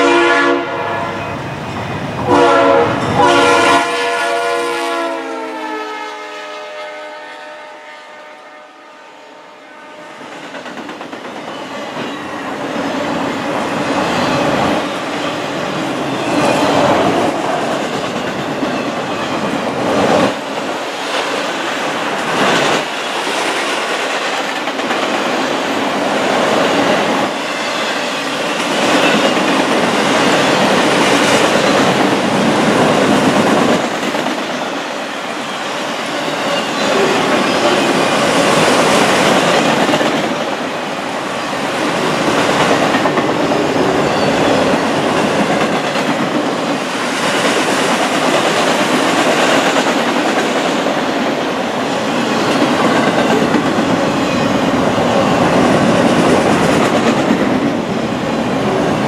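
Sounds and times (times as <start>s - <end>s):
freight train wheels clattering: 10.3s - 40.8s, 41.5s - 57.9s.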